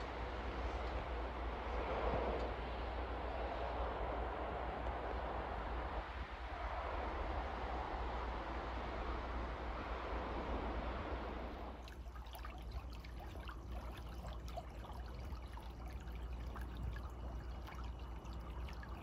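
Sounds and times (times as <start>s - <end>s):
steady rushing noise: 0.0s - 12.0s
little splashes and drips: 11.5s - 19.0s
small stream trickling: 11.5s - 19.0s.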